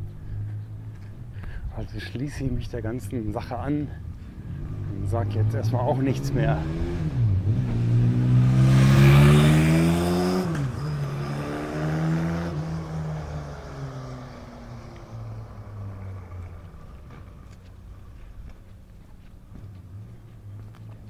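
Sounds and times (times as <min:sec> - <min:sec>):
vehicle engine accelerating: 0:00.0 - 0:01.3, 0:04.0 - 0:21.0.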